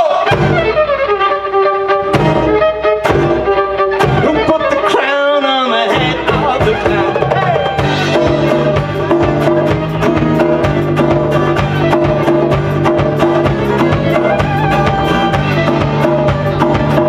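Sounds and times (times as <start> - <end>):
drum kit steady beat: 0.0 - 1.0, 2.1 - 4.8, 5.8 - 17.0
acoustic guitar: 0.0 - 17.0
bass guitar: 0.0 - 17.0
bowed fiddle: 0.0 - 17.0.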